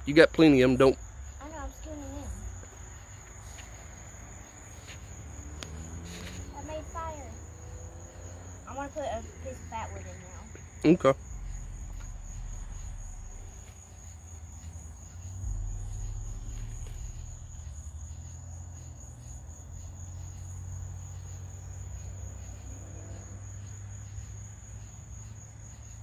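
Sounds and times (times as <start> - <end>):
crickets chirping: 0.0 - 26.0
low rumble: 11.2 - 20.2.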